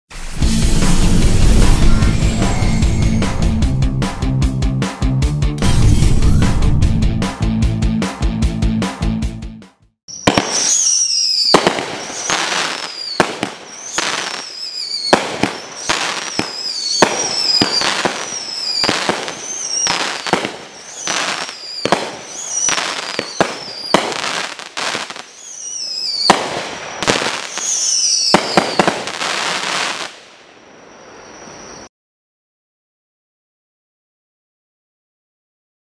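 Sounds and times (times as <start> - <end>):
fireworks bangs whistles and crackling: 0.2 - 3.7, 5.7 - 6.6, 10.1 - 31.9.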